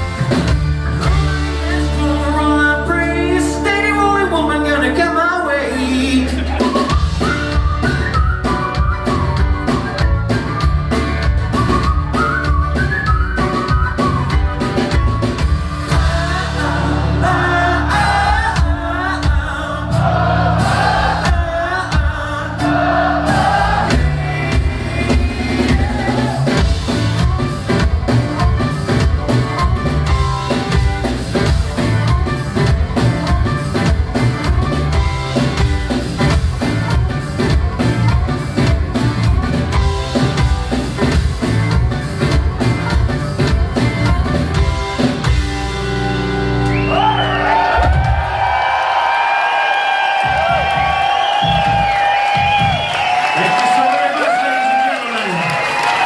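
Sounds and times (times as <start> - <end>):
live band playing rock song: 0.0 - 56.0
person singing: 1.6 - 6.9, 15.9 - 26.6
crowd cheering and whooping: 6.1 - 8.6, 22.6 - 26.6, 46.6 - 56.0.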